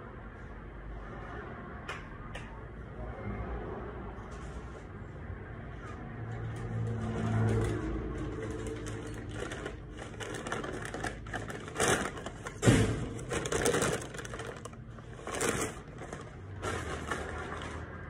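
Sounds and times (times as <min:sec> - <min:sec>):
objects knocking and crinkling: 0:06.6 - 0:18.0.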